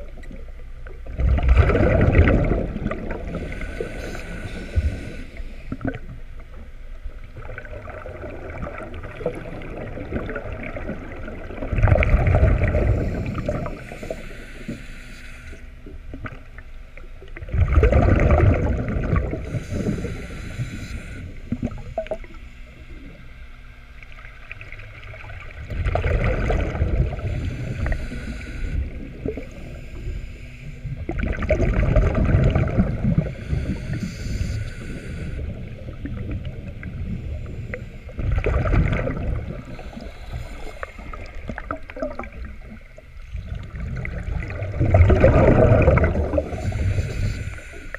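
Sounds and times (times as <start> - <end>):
regulator bubbling exhalation: 17.6 - 22.3, 25.7 - 30.1, 31.0 - 37.6, 38.2 - 47.9.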